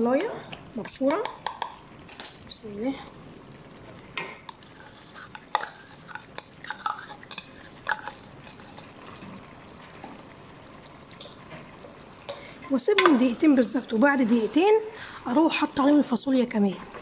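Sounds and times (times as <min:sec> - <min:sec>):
spatula scraping and tapping pan: 0:01.0 - 0:02.3, 0:04.2 - 0:09.4, 0:12.2 - 0:13.3.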